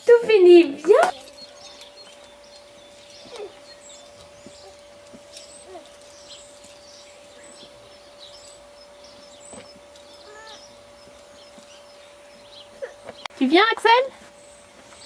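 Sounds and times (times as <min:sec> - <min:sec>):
small birds chirping: 0:00.5 - 0:15.0.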